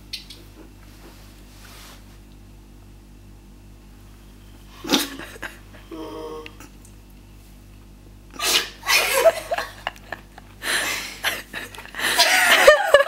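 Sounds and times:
person snoring and snorting: 0:05.9 - 0:06.7.

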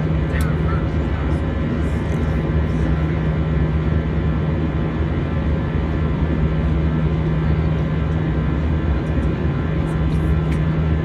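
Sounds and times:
jet engine drone: 0:00.0 - 0:11.0
low cabin hum: 0:00.0 - 0:11.0.

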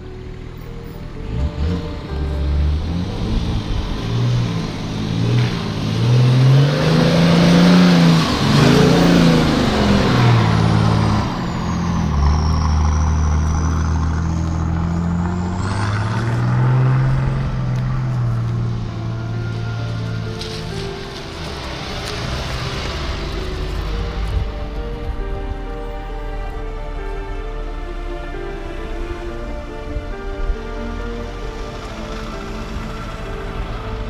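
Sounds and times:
off-road vehicles driving past: 0:00.0 - 0:34.0.

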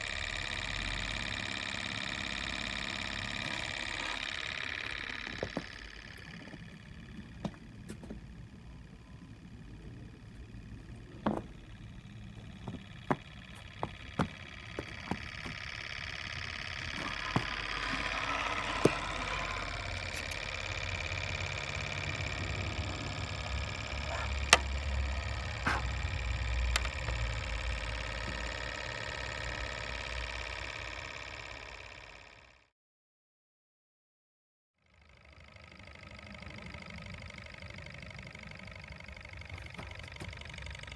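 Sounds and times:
sharp clicks: 0:00.0 - 0:32.4
engine whirring with high tones: 0:00.0 - 0:32.7, 0:34.8 - 0:40.9.

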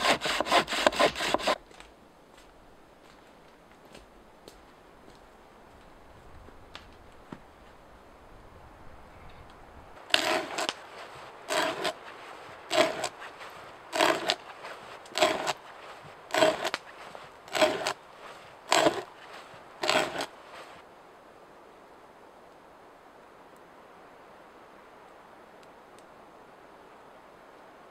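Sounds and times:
hand auger rasping into log: 0:00.0 - 0:01.6, 0:10.1 - 0:20.8.

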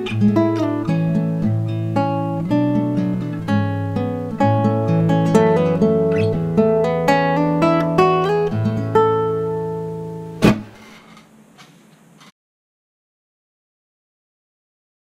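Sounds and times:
classical guitar fingerpicked: 0:00.0 - 0:10.7
sharp knock on guitar: 0:10.4 - 0:10.9.

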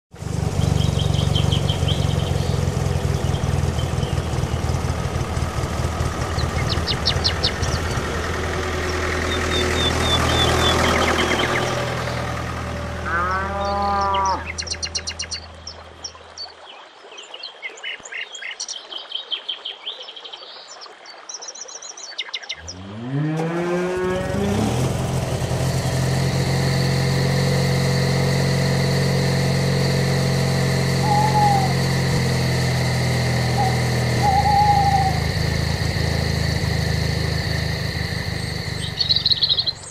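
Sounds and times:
tractor engine starting and idling: 0:00.1 - 0:16.1, 0:22.6 - 0:39.9
low engine drone: 0:00.1 - 0:16.6, 0:22.6 - 0:39.9
birds chirping: 0:00.2 - 0:23.2, 0:24.1 - 0:39.9
cow mooing: 0:13.0 - 0:15.0.

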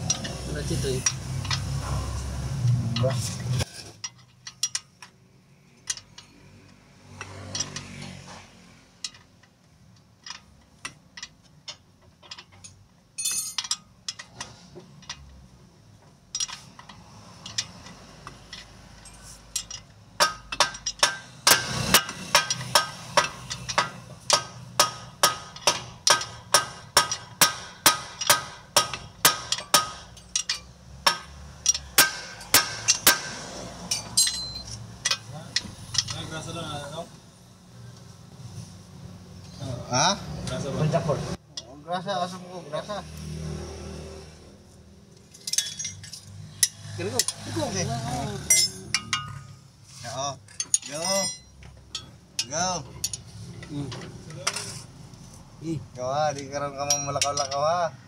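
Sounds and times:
hammer striking metal: 0:19.6 - 0:36.2, 0:48.4 - 0:49.6.

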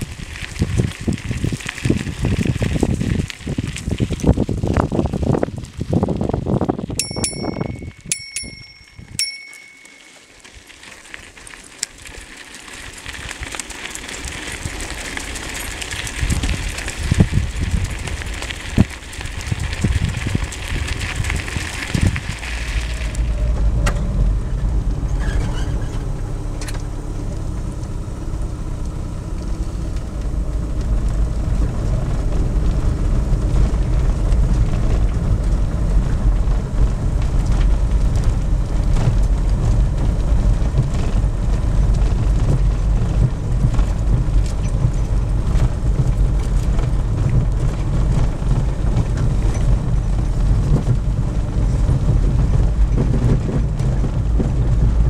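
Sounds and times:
vehicle driving on gravel: 0:00.0 - 0:55.0
bicycle bell ringing: 0:07.0 - 0:10.5.

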